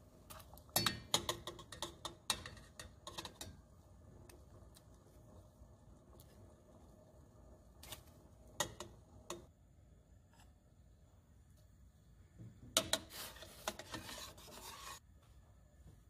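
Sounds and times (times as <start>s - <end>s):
spoon scraping paste: 12.9s - 15.0s.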